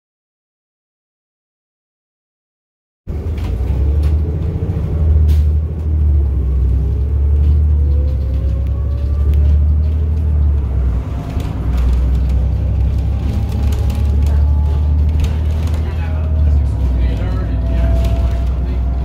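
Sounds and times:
bus diesel engine droning: 0:03.1 - 0:19.0
light cabin rattles: 0:06.9 - 0:19.0.

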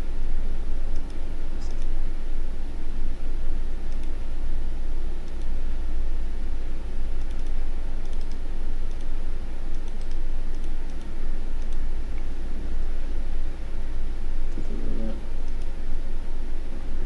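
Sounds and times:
mouse and keyboard clicks: 0:00.9 - 0:01.9, 0:03.9 - 0:04.2, 0:07.2 - 0:09.1, 0:09.7 - 0:11.8.

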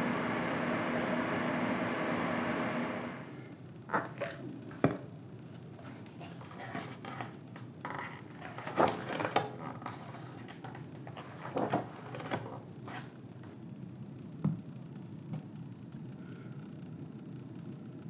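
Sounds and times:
book pages turning: 0:05.5 - 0:13.1.

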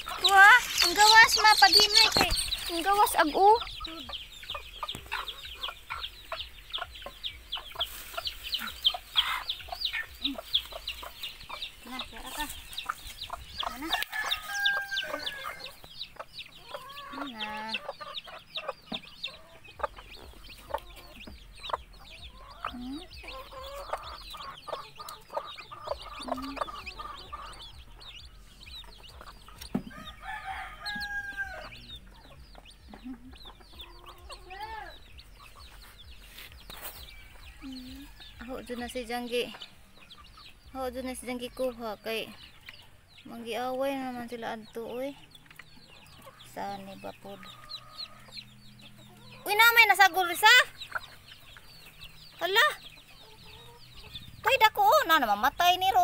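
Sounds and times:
adult chickens calling: 0:00.0 - 0:56.0
chicks peeping: 0:00.0 - 0:56.0
hen clucking low: 0:16.6 - 0:28.0.

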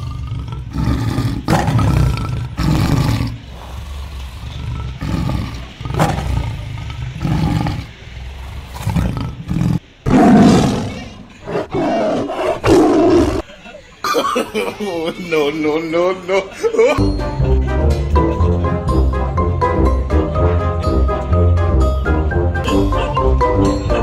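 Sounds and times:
recorded tiger roars and growls: 0:00.0 - 0:13.5.

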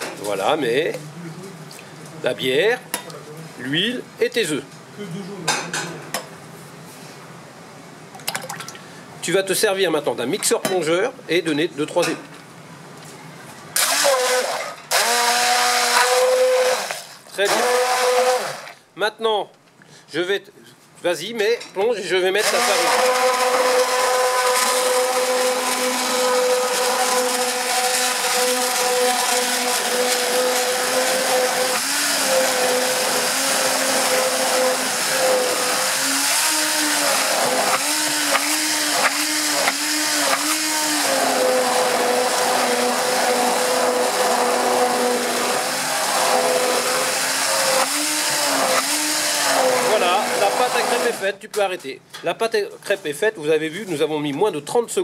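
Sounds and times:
immersion blender running in a bowl: 0:13.8 - 0:18.8, 0:22.4 - 0:51.2.

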